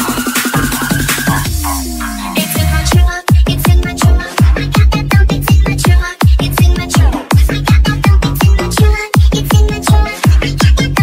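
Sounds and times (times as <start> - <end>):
synth chords: 0.0 - 4.8
electronic dance music: 0.0 - 11.0
fast kick drum: 2.6 - 11.0.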